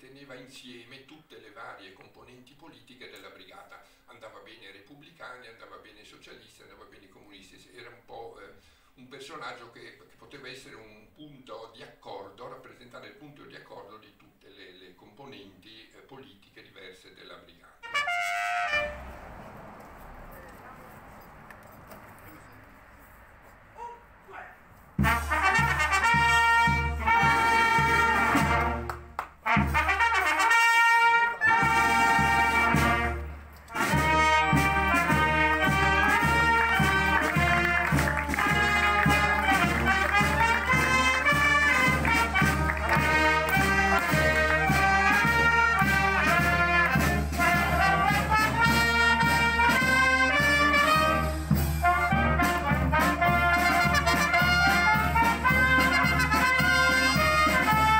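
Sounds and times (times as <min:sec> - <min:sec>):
brass band playing: 0:17.8 - 0:19.7, 0:25.0 - 0:57.9.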